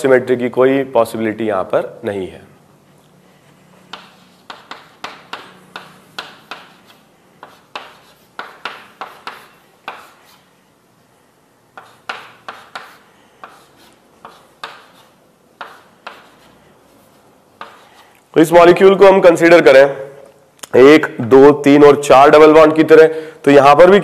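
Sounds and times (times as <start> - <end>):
writing taps on a board: 3.9 - 10.2, 11.8 - 15.0, 15.6 - 16.3, 17.6 - 17.9.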